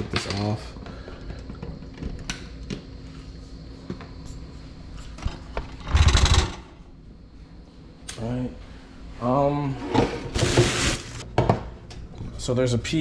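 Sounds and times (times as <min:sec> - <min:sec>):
loud rubbing rustle: 0:09.9 - 0:11.2.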